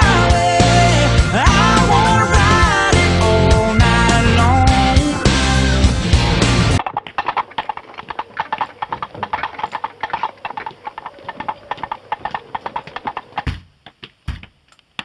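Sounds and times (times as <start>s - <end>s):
footsteps on concrete: 7.0s - 15.0s.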